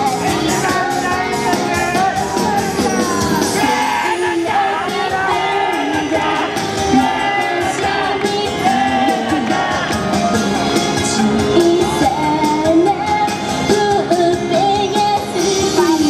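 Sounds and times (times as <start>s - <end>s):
pop song through a speaker: 0.0s - 16.0s
girls singing into microphones: 3.6s - 16.0s.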